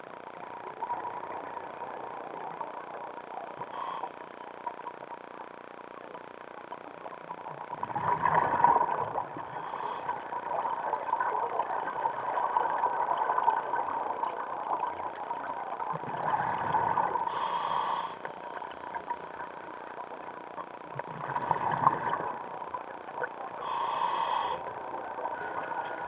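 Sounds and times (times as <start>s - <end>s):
underwater regulator bubbles: 7.4s - 17.7s, 20.9s - 24.2s.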